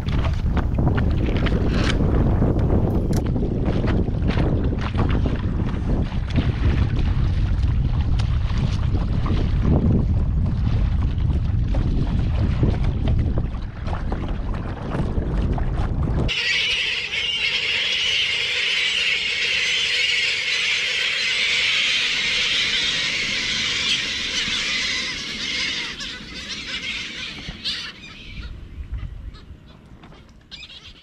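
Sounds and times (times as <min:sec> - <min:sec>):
wind buffeting microphone: 0:00.0 - 0:17.4, 0:21.5 - 0:30.4
flock of seagulls squawking: 0:16.3 - 0:31.0.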